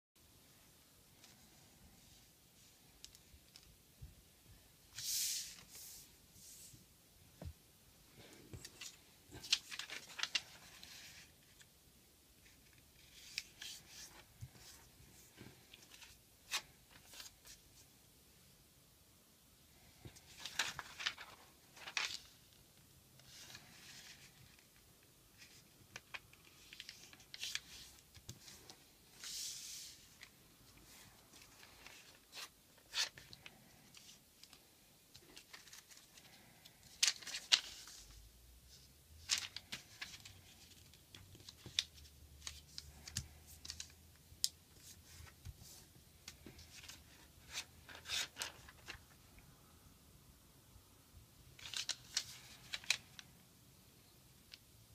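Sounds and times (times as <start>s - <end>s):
paper rustling and creasing: 8.2s - 11.7s, 12.4s - 17.6s, 20.0s - 22.6s, 23.2s - 49.3s, 51.5s - 53.3s.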